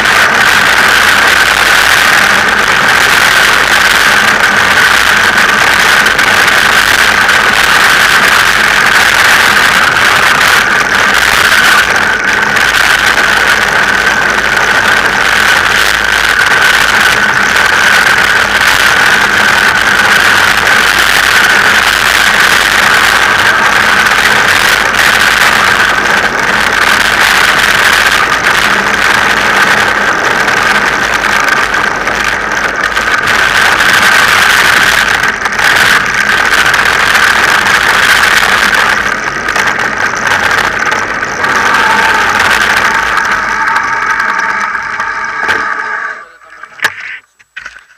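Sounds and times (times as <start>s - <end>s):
bike rolling on gravel track: 0.0s - 47.9s.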